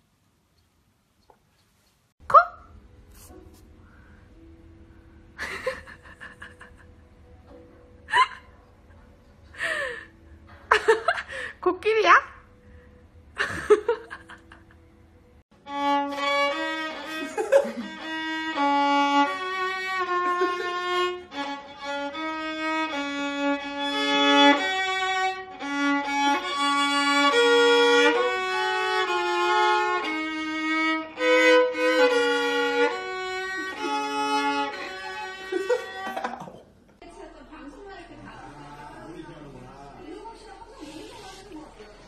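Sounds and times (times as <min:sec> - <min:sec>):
violin bowed slow melody: 0:15.6 - 0:36.2.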